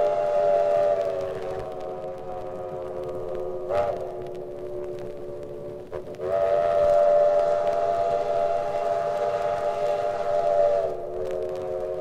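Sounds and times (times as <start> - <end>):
steam locomotive chime whistle: 6.2 - 12.0.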